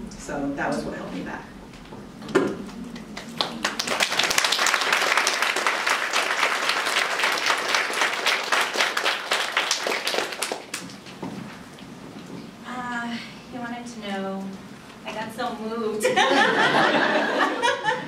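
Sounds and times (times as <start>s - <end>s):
audience applauding: 2.6s - 11.2s.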